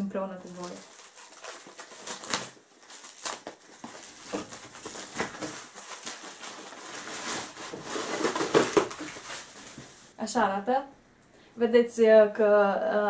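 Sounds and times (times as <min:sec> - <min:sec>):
plastic wrapping rustling: 0:00.3 - 0:10.2.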